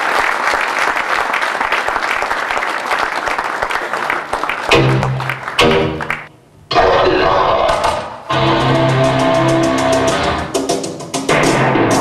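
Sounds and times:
audience applauding: 0.0s - 6.3s
loud music chords: 4.7s - 6.3s, 8.3s - 12.0s.

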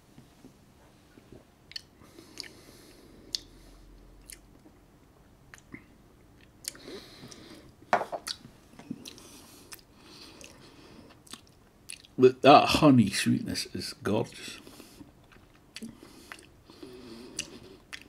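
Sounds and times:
lip smacks: 1.7s - 2.6s, 6.4s - 7.4s, 17.3s - 18.0s
glass knocking on table: 7.9s - 8.2s.

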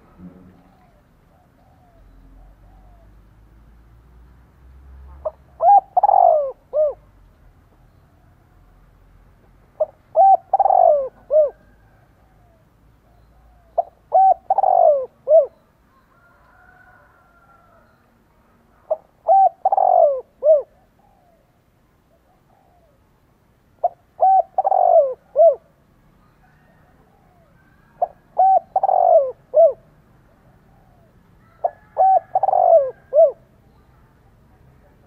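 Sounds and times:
dove cooing: 5.2s - 7.1s, 9.8s - 15.6s, 18.9s - 21.5s, 22.1s - 23.0s, 23.8s - 29.9s, 30.5s - 33.8s.

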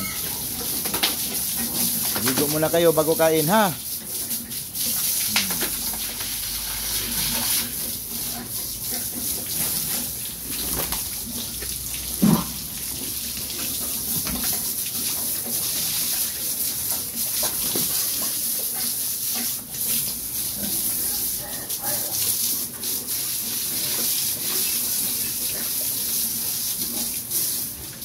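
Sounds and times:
hose spraying water: 0.0s - 28.0s
pig grunting: 5.2s - 6.0s.

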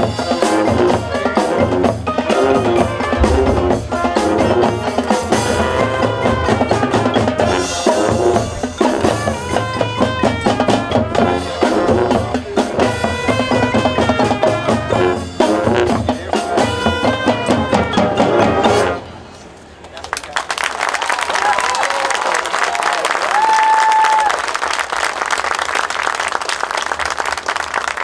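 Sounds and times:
drumline and bass drums: 0.0s - 19.0s
marching band playing: 0.0s - 19.2s.

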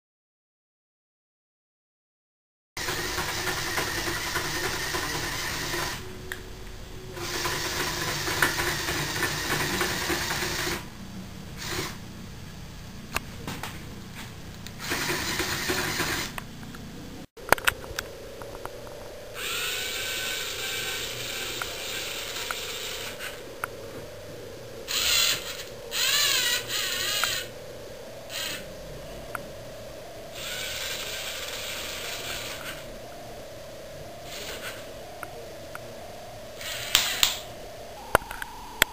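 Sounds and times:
small electric motors whirring: 2.8s - 6.1s, 7.2s - 10.9s, 11.6s - 12.0s, 14.8s - 16.4s, 19.4s - 23.4s, 24.9s - 27.5s, 28.3s - 28.7s, 30.4s - 32.9s, 34.3s - 34.9s, 36.6s - 37.4s
wavering motor whine: 2.8s - 12.2s, 14.8s - 38.9s
sharp click: 36.8s - 37.4s.

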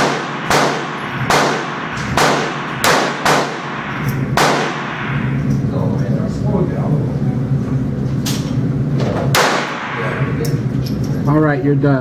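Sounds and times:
pistol shots indoors: 0.0s - 5.5s, 9.3s - 10.5s.

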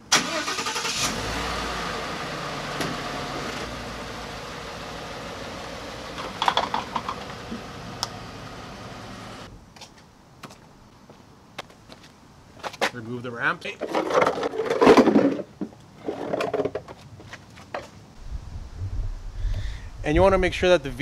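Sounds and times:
truck engine idling: 0.3s - 9.5s.

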